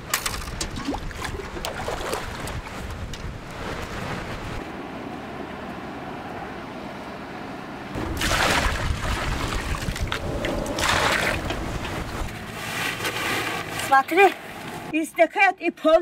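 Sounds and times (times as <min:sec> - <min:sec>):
water splashing from a bucket: 0:08.0 - 0:11.6.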